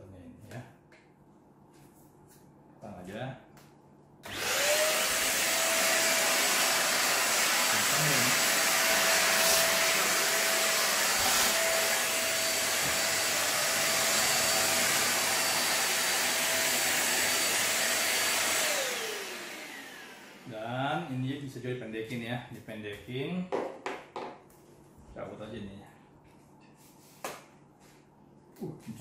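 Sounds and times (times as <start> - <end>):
vacuum cleaner motor whine: 4.2 - 20.6.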